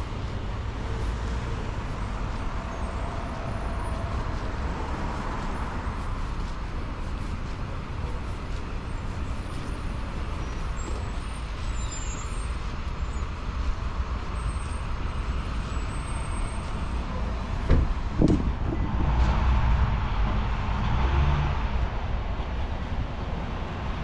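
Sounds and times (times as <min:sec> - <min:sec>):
vehicles passing: 0:00.0 - 0:24.0
loud knocks: 0:17.7 - 0:19.1.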